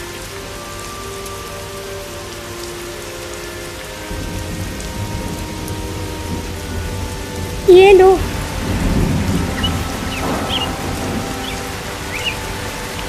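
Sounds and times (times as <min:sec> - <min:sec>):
steady rain: 0:00.0 - 0:13.0
low rumble of thunder: 0:04.1 - 0:13.0.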